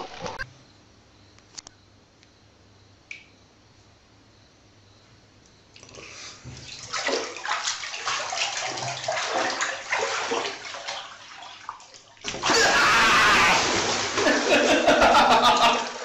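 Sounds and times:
water splashing into a bathtub: 5.8s - 16.0s.

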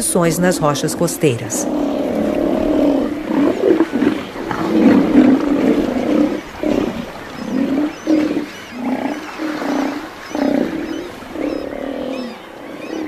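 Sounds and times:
sea lions roaring: 0.4s - 13.0s.

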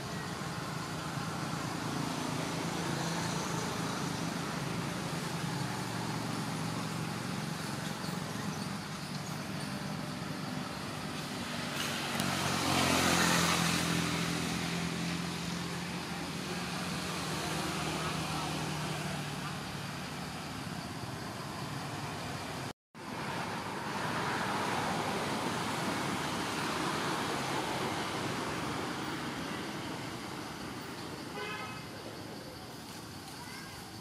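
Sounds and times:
traffic engine hum: 0.0s - 34.0s
vehicle passing: 11.0s - 20.3s.

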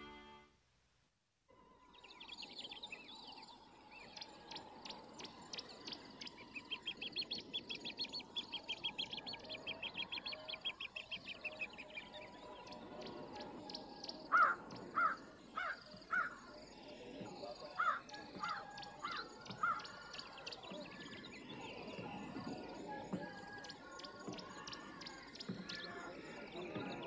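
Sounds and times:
birds chirping: 1.6s - 27.0s
crow cawing: 14.3s - 16.4s, 17.8s - 20.0s.

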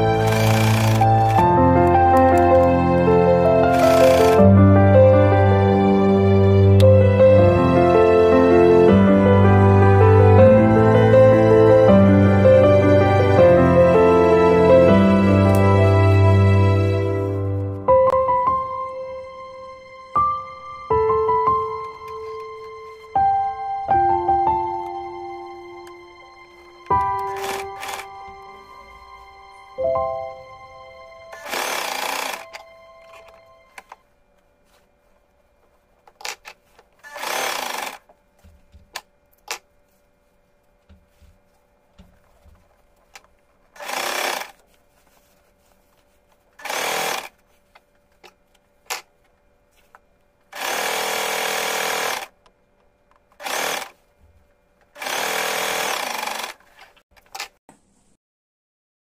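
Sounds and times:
sewing machine stitching: 0.0s - 1.4s, 3.6s - 4.4s, 27.2s - 28.1s, 31.3s - 33.8s, 36.2s - 38.0s, 43.8s - 44.6s, 46.6s - 47.4s, 50.5s - 52.3s, 53.4s - 54.0s, 54.9s - 57.5s.

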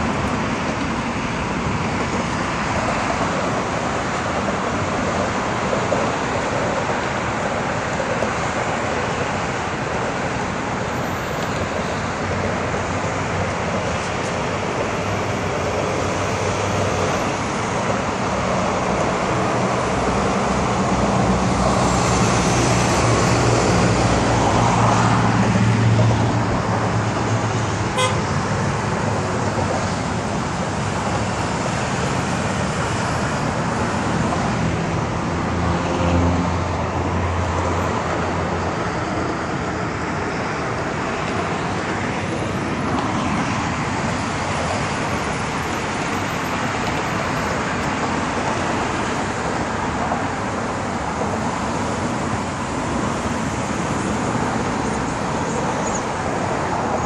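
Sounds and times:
cars driving past: 0.0s - 57.0s
large vehicles passing: 0.0s - 57.0s.

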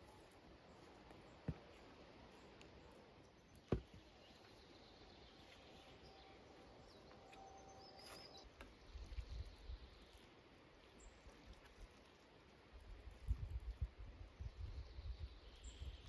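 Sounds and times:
soft bird chirps: 0.0s - 12.4s, 13.2s - 16.0s
faint steady rain: 8.7s - 14.5s.

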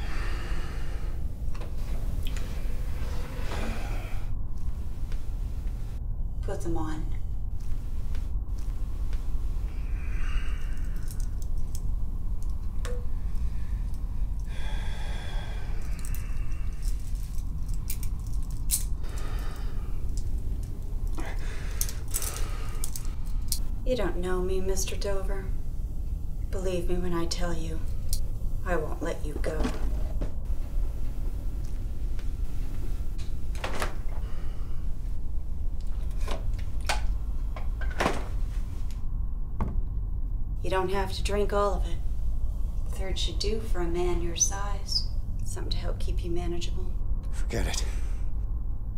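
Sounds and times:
steady low hum: 0.0s - 48.9s
steady low rumble: 0.0s - 48.9s
handcuffs clicking and ratcheting: 10.8s - 12.6s, 15.8s - 18.9s, 21.8s - 23.6s.

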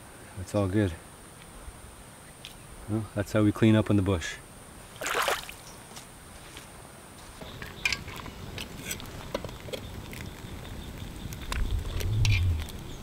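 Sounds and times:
fire crackling: 7.2s - 13.0s
spoon scraping metal pot: 7.7s - 9.9s.

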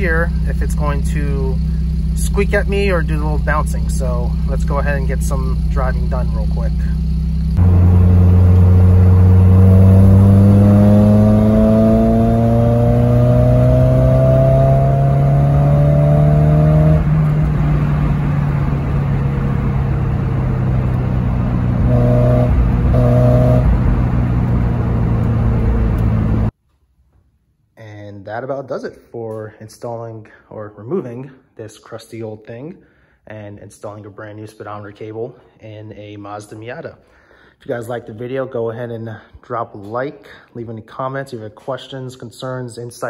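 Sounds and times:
car engine heard from cabin: 0.0s - 26.5s.

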